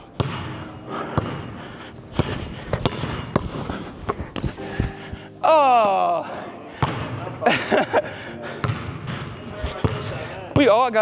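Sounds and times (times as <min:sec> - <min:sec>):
basketball bouncing on wooden floor: 0:00.2 - 0:00.4, 0:02.2 - 0:05.0, 0:06.8 - 0:07.1, 0:08.6 - 0:09.2.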